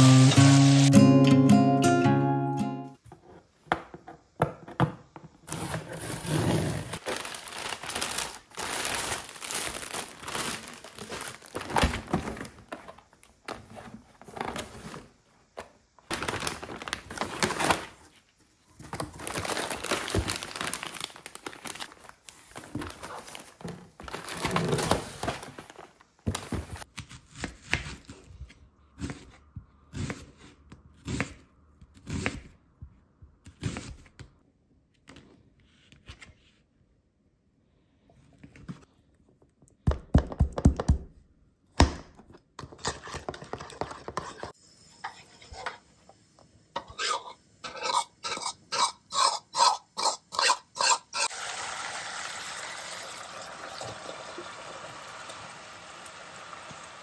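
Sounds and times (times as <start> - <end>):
packaging crinkling and tearing: 6.9 - 13.4, 16.1 - 18.1, 18.8 - 26.9.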